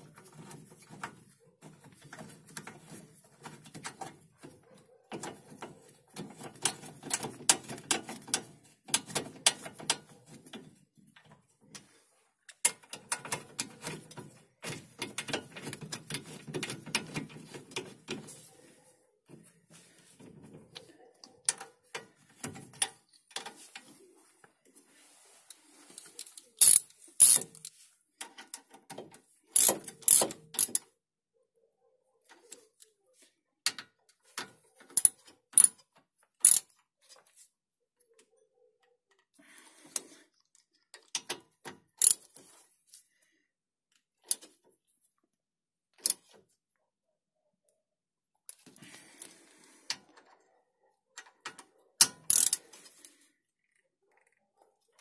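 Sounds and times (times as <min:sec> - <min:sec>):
ratchet clicking on bolts: 0:26.2 - 0:27.7, 0:29.5 - 0:30.8, 0:36.4 - 0:36.7, 0:42.0 - 0:42.3, 0:51.4 - 0:52.6.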